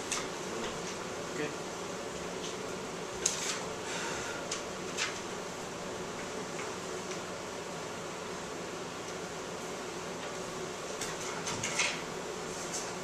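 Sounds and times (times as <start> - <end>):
room hiss: 0.0 - 13.0
paper rustling and crackling: 3.2 - 3.7.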